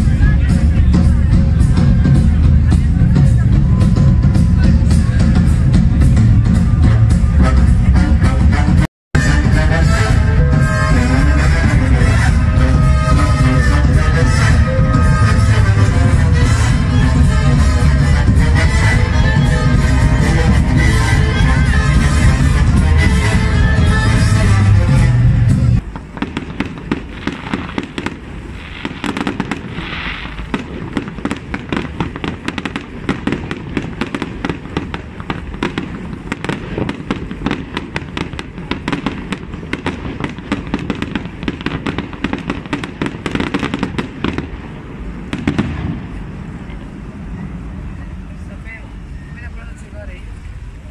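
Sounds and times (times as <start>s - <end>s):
fireworks popping and crackling: 0.0s - 7.8s, 9.2s - 50.9s
loud live concert music: 0.0s - 25.8s.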